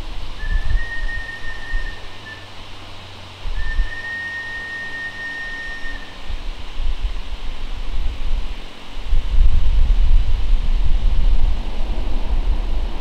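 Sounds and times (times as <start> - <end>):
model locomotive whistle blasts: 0.4 - 2.5, 3.6 - 6.2.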